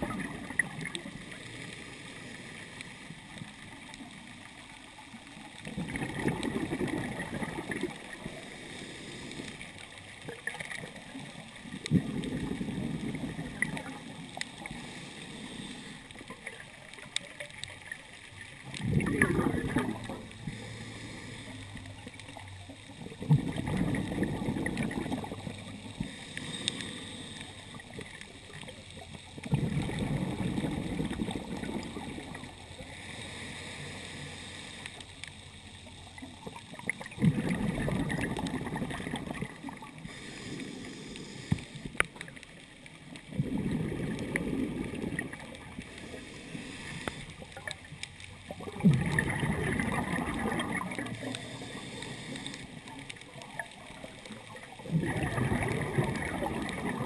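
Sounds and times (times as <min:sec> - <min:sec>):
exhaled bubbles rushing: 0:00.0 - 0:01.5, 0:03.2 - 0:08.6, 0:10.1 - 0:14.9, 0:16.1 - 0:20.6, 0:22.1 - 0:26.2, 0:27.6 - 0:32.8, 0:36.1 - 0:40.2, 0:42.0 - 0:57.0
diver breathing through regulator: 0:07.1 - 0:09.8, 0:14.6 - 0:16.3, 0:19.3 - 0:21.9, 0:25.8 - 0:28.2, 0:32.8 - 0:35.2, 0:39.6 - 0:42.0, 0:43.6 - 0:47.6, 0:50.6 - 0:53.0.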